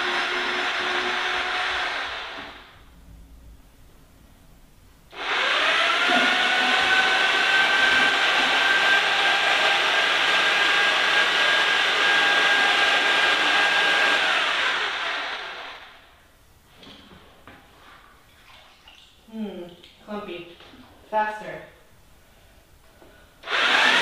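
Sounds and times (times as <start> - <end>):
electric mixer whining: 0.0 - 2.6, 5.2 - 16.0, 23.4 - 24.0.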